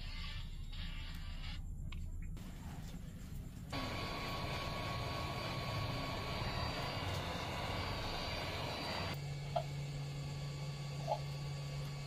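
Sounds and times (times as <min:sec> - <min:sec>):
low electrical hum: 0:00.0 - 0:12.0
small electric motor whining: 0:03.7 - 0:12.0.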